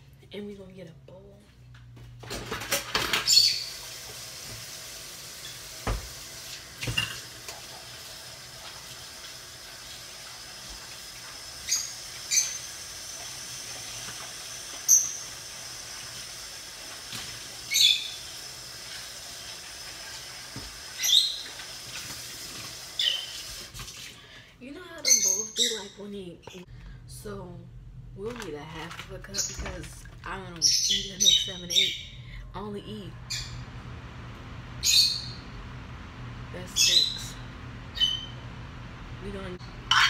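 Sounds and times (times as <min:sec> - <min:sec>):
water running from a tap: 0:02.8 - 0:24.4.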